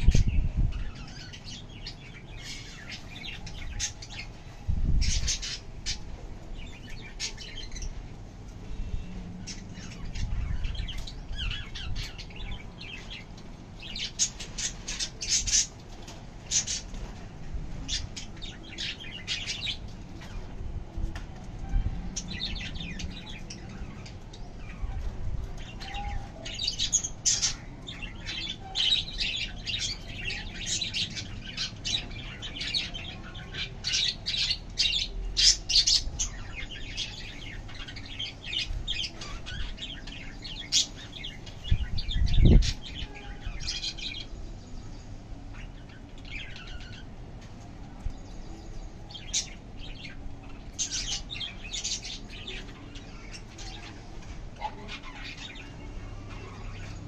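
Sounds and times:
birds chirping and squawking: 0.0s - 57.0s.

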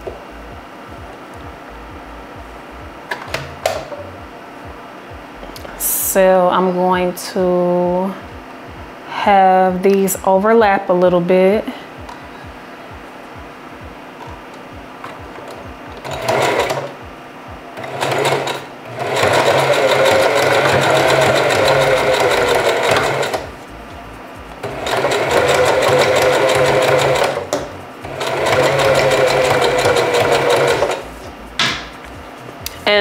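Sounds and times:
sewing machine stitching: 16.0s - 16.9s, 17.8s - 23.5s, 24.6s - 31.1s.

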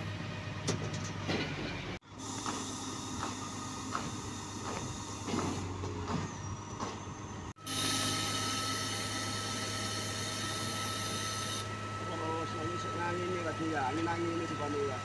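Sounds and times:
steady high whine: 7.5s - 15.0s.

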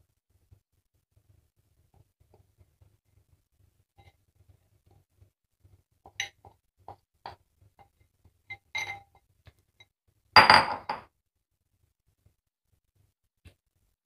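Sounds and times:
spoon clattering: 8.5s - 9.0s.

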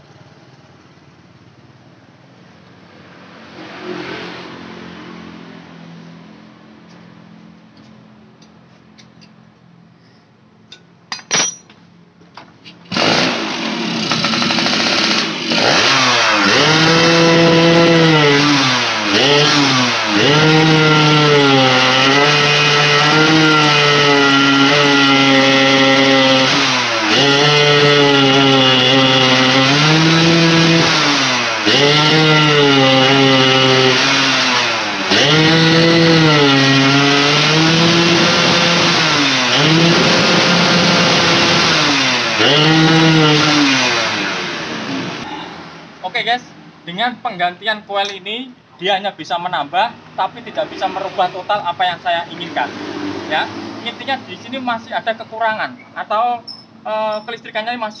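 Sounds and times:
two-stroke engine revving: 3.2s - 5.5s, 12.9s - 45.3s, 50.2s - 54.8s.

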